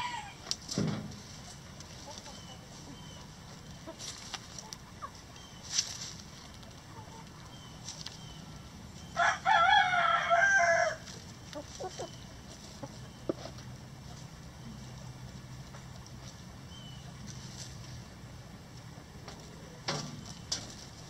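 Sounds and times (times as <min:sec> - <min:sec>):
rooster crowing: 0:00.0 - 0:00.4, 0:09.2 - 0:11.0
hens clucking softly: 0:01.3 - 0:08.3, 0:10.0 - 0:20.8.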